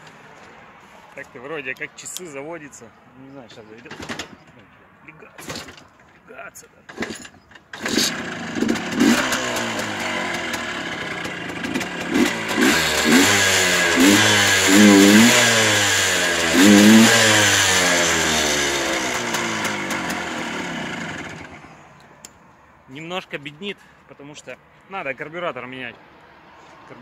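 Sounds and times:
motorcycle engine revving: 6.9 - 21.8.

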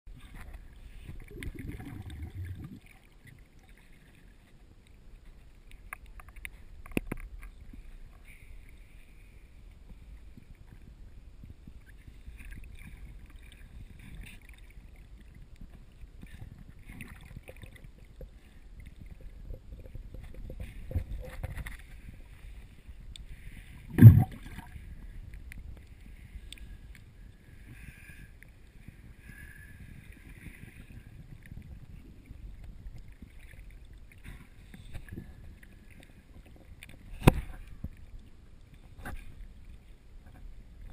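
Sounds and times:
muffled underwater rumble: 0.1 - 40.9
loud thump: 23.9 - 24.4.

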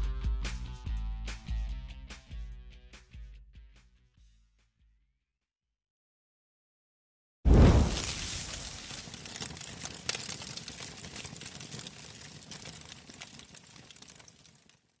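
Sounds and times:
deep boom: 7.5 - 8.7
crackling hissing tail: 7.5 - 9.1.

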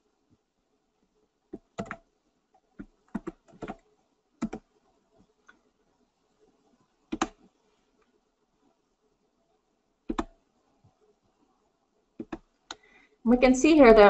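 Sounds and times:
keyboard and mouse clicking: 1.6 - 2.0, 2.8 - 3.8, 4.4 - 4.7, 7.1 - 7.4, 10.1 - 10.4, 12.2 - 12.8.

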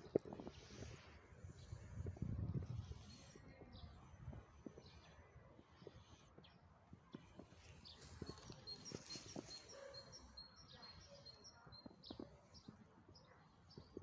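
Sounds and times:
bird chirping: 7.9 - 14.0.

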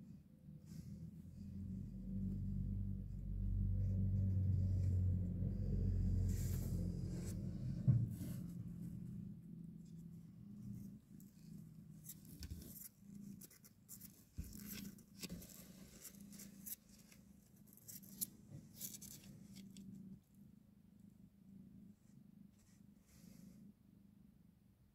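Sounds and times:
kittens rustling and clicking: 10.8 - 20.0.

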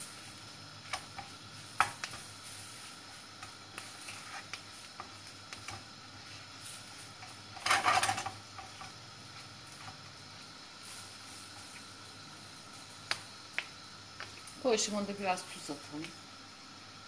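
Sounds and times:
faint sizzle: 0.0 - 17.0
wooden spatula scraping frying pan: 3.9 - 4.6, 7.3 - 8.8.

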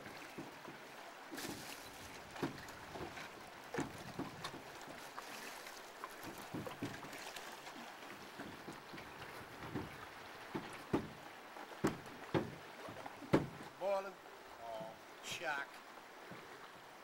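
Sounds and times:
waves lapping at rocky shore: 0.0 - 17.0.

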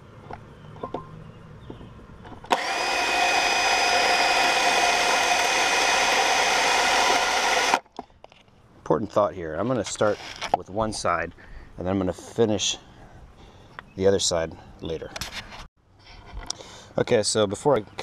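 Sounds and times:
cordless drill drilling metal: 2.5 - 7.8.

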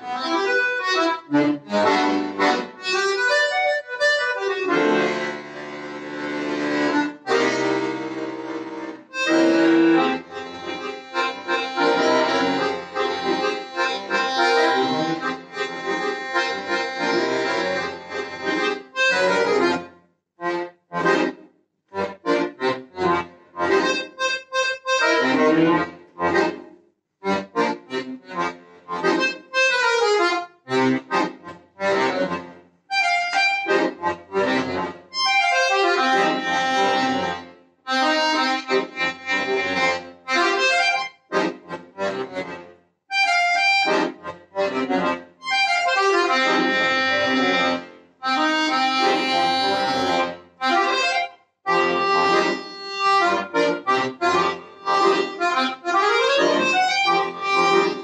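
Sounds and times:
button accordion playing: 0.0 - 58.0.

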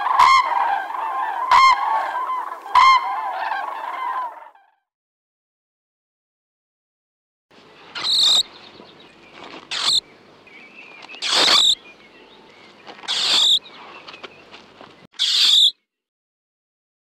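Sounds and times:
mole squeaking: 8.0 - 8.5, 9.6 - 10.0, 11.0 - 11.8, 12.9 - 14.4, 15.2 - 15.7.

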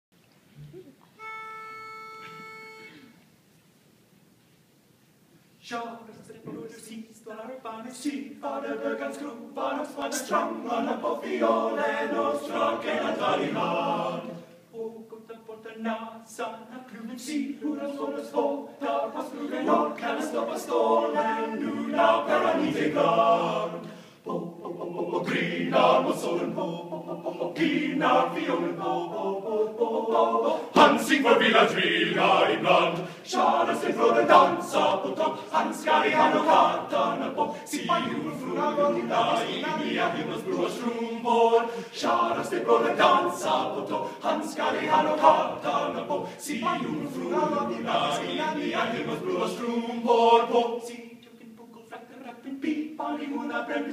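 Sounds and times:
male a cappella group singing: 5.6 - 53.9.

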